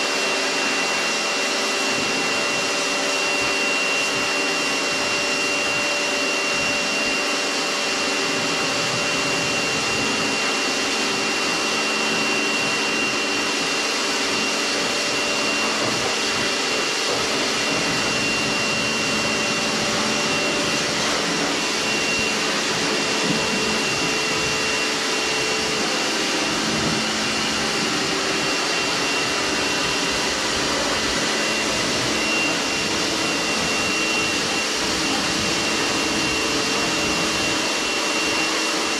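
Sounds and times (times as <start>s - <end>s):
pressure washer motor whine: 0.0s - 38.9s
water jet hissing: 8.2s - 38.9s.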